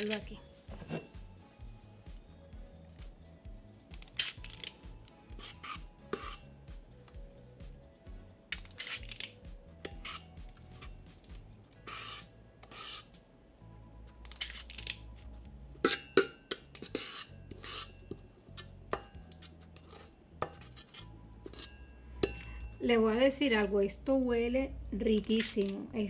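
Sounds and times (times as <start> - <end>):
scoop scraping batter: 4.2 - 6.5, 8.6 - 11.0, 11.8 - 13.2, 15.8 - 21.7.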